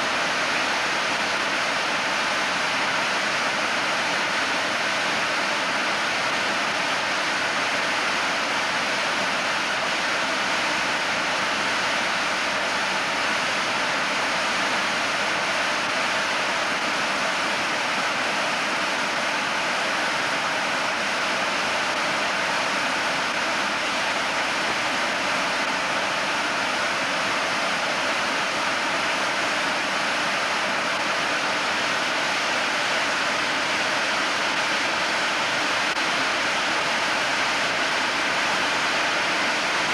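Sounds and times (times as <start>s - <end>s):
model jet turbine running: 0.0s - 39.9s.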